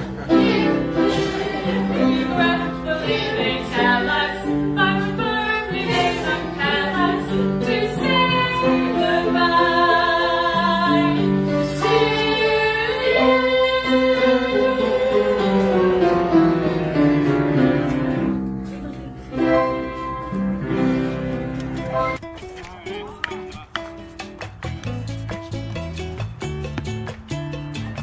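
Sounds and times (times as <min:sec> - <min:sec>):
two women singing: 0:00.3 - 0:16.3.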